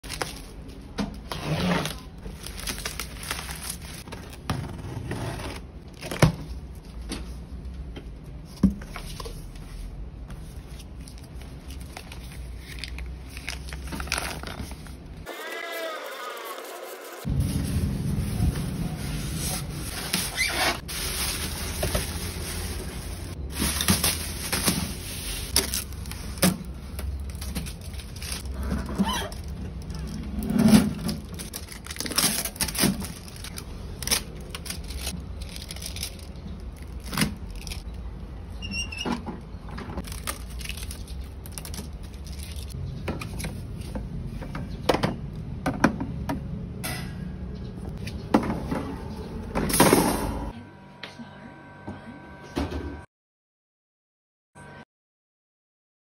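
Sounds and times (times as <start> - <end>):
plastic wrapping rustling: 0.0 - 1.0, 1.9 - 4.5, 10.4 - 15.3, 17.2 - 37.9, 40.0 - 43.9
foam packing scraping: 17.2 - 35.2.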